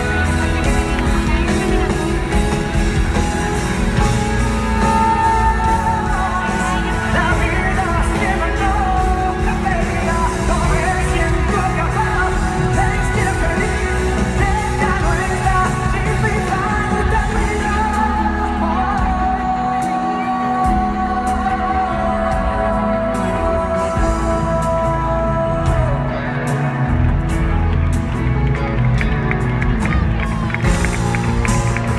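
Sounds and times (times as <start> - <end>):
man singing: 0.0 - 28.0
live pop-rock band: 0.0 - 31.9.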